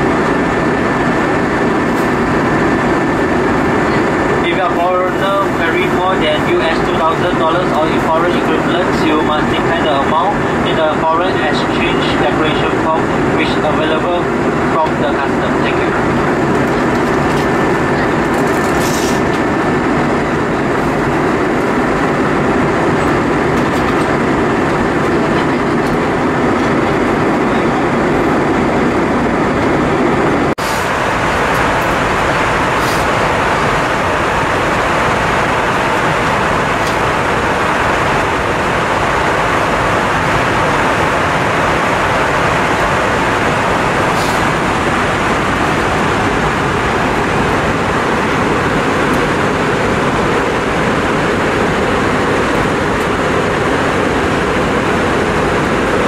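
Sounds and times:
airliner cabin noise: 0.0s - 56.0s
faint steady whine: 0.0s - 56.0s.

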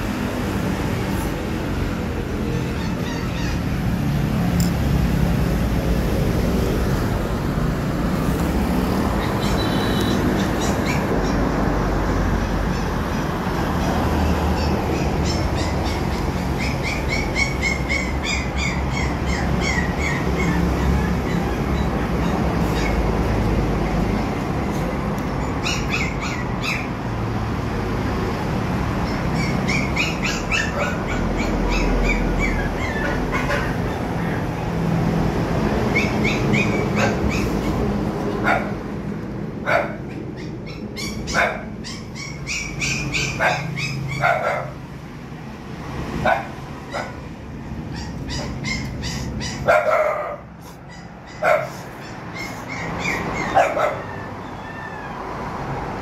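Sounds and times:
road traffic rumbling: 0.0s - 56.0s
dog barking: 29.1s - 34.5s, 35.9s - 37.8s, 38.4s - 38.8s, 39.6s - 44.8s, 46.2s - 47.2s, 47.9s - 54.3s.

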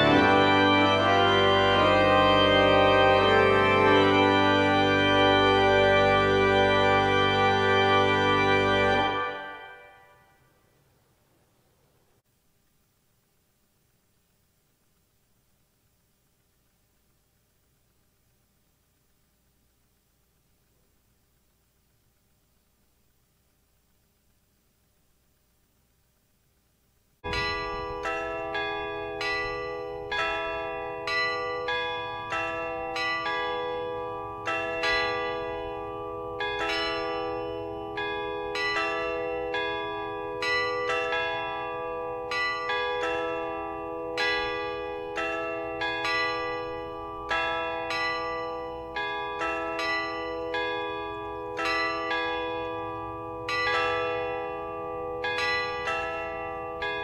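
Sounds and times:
church bells pealing: 0.0s - 10.0s, 27.3s - 57.0s.

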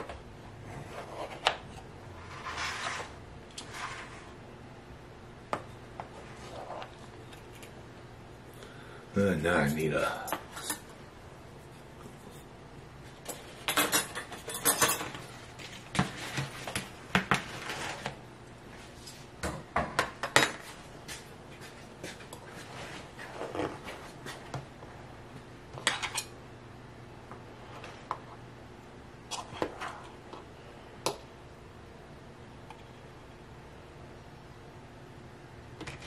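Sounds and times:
utensil scraping a cake pan: 2.2s - 4.4s.

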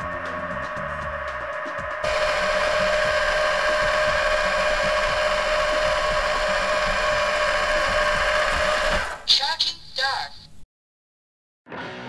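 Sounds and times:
robot vacuum whine: 0.0s - 9.3s.

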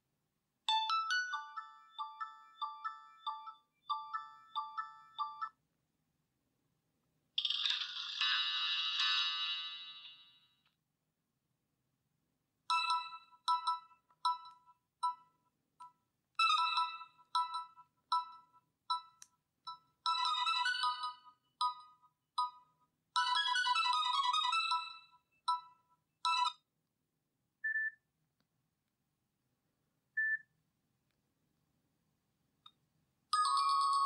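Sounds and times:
electronic ringtone melody: 0.7s - 5.6s, 12.7s - 15.3s, 16.4s - 26.6s.

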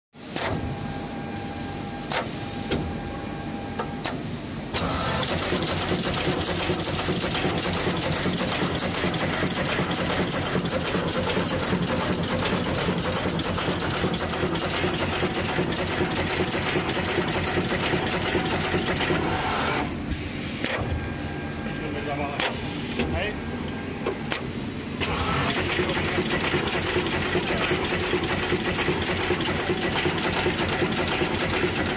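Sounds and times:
rapid mechanical clatter: 4.7s - 19.3s, 25.0s - 31.9s.

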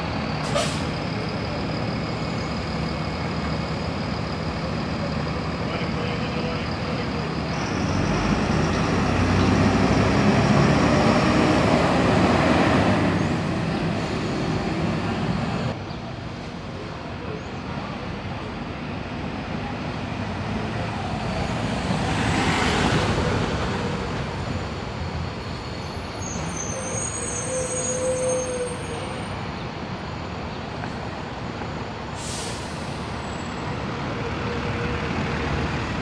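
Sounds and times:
buses driving past: 0.0s - 36.0s
faint high squeal: 0.3s - 7.9s, 24.3s - 29.4s
air brakes hiss: 0.4s - 1.0s, 32.2s - 33.2s.

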